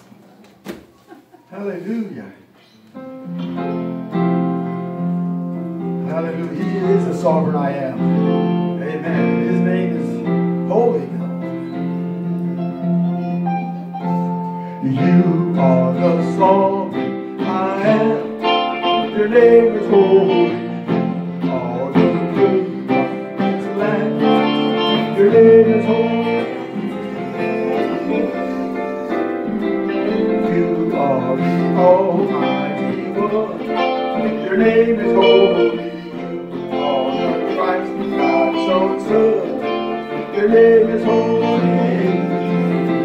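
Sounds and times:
electric guitar melody: 2.8s - 43.0s
sustained keyboard chords: 3.0s - 43.0s.

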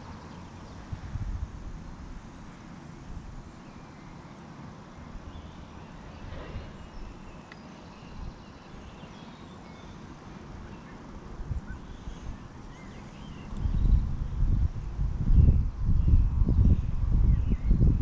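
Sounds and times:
low rumble: 5.9s - 7.4s.

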